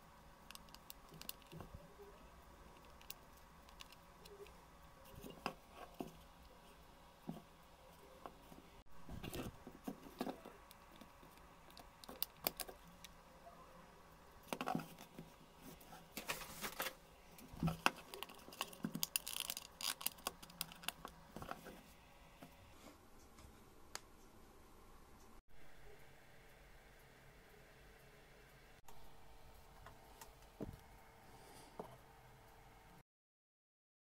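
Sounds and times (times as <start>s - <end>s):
small metal clicks and scrapes: 2.7s - 6.5s.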